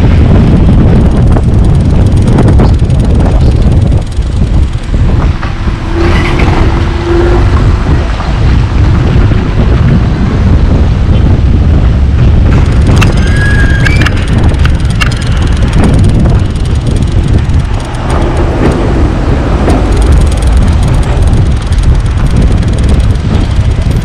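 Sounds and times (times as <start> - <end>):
tyre rumble on dirt road: 0.0 - 24.0
sharp clicks: 1.4 - 5.6, 12.5 - 19.0, 19.6 - 24.0
short high squeak: 13.1 - 14.3.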